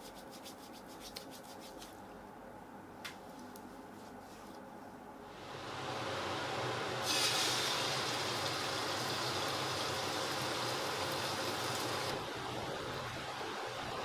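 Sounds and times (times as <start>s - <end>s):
egg sizzling in wok: 5.7s - 12.2s.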